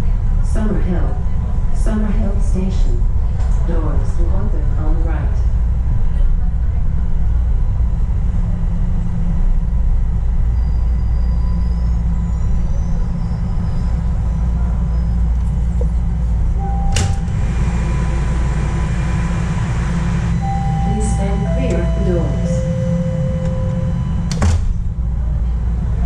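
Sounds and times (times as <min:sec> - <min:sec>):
subway train rumbling in tunnel: 0:00.0 - 0:26.0
faint steady whine: 0:14.4 - 0:26.0.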